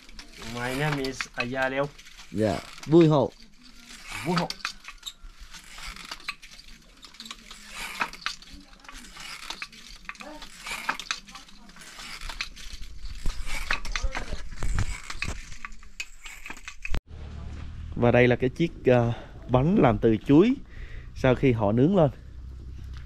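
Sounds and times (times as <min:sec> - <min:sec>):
wooden loom clacking: 0:00.0 - 0:17.0.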